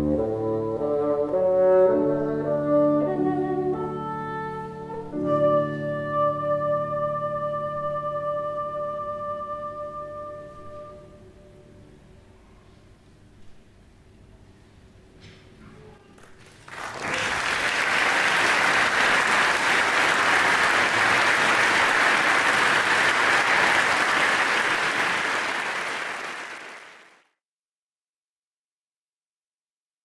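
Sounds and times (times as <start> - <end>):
audience clapping: 16.2 - 27.2.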